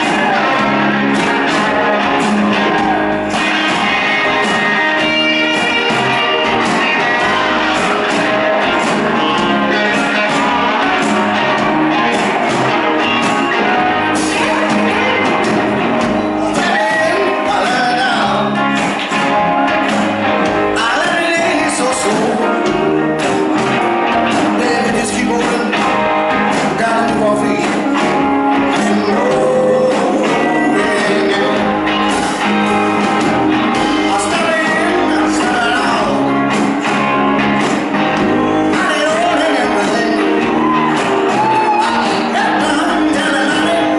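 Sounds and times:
rock band playing: 0.0 - 43.9
man singing: 16.3 - 18.6, 20.7 - 23.0, 24.3 - 32.5, 33.6 - 36.6, 38.0 - 43.9.

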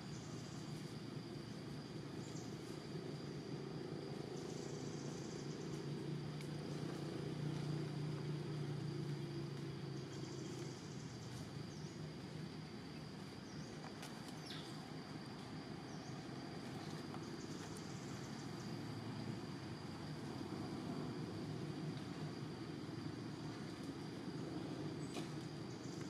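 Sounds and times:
high insect whine: 0.0 - 26.0
insect buzzing: 0.0 - 26.0
low hum of distant engine: 0.0 - 26.0.

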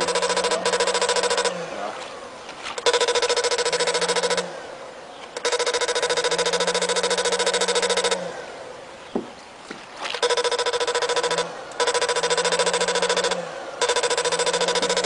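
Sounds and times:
pulsing electric buzz: 0.0 - 2.0, 2.7 - 4.6, 5.4 - 8.4, 10.2 - 15.0.

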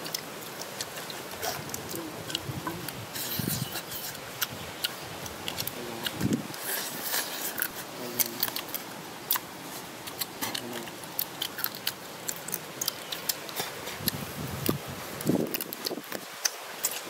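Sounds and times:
chewing and lip-smacking: 0.0 - 17.0.

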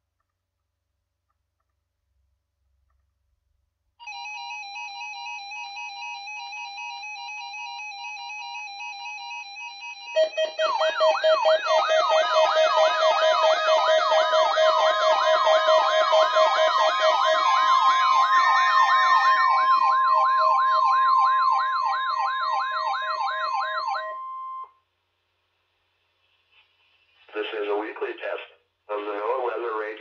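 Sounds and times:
steady alarm tone: 4.1 - 24.8
siren-like alarm sweep: 8.9 - 24.7
fast-pulsing beep: 10.1 - 24.7.

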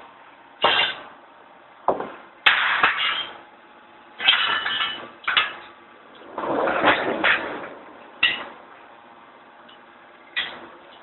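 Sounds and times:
steel rod clanking against metal: 0.6 - 1.1, 8.2 - 8.6, 10.4 - 11.0.

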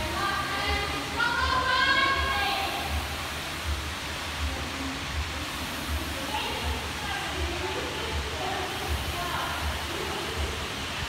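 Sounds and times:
room noise hiss: 0.0 - 11.0.

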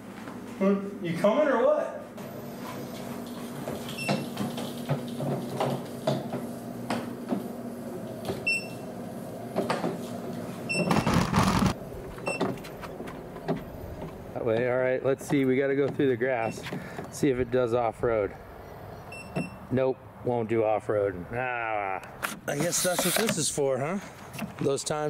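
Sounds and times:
electric motor hum: 10.9 - 12.2.

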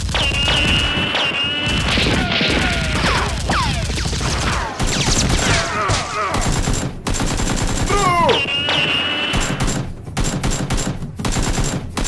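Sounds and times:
gunfire sound effects: 0.0 - 12.0
falling whistles: 0.2 - 1.9, 8.2 - 9.6.

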